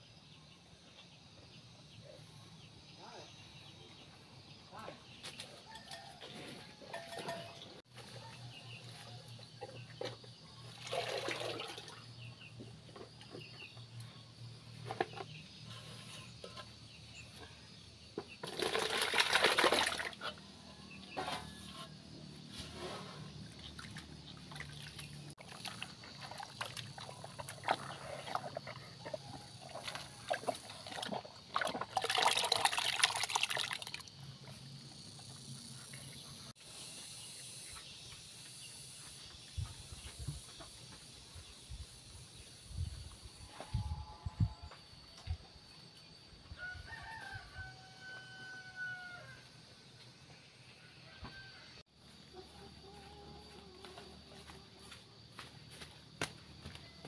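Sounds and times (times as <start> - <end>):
watery feed pouring and splashing: 10.6 - 12.2, 18.4 - 20.3, 23.7 - 34.1.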